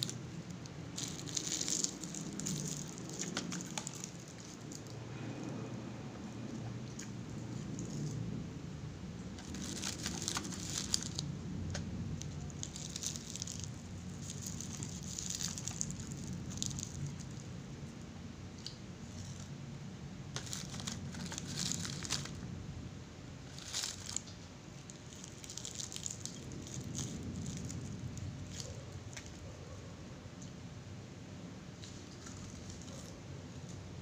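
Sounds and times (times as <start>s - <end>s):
seaweed crinkling and crackling: 0.0s - 5.0s, 9.4s - 17.5s, 20.4s - 22.5s, 23.4s - 29.4s, 31.8s - 34.0s
low steady hum: 0.0s - 34.0s.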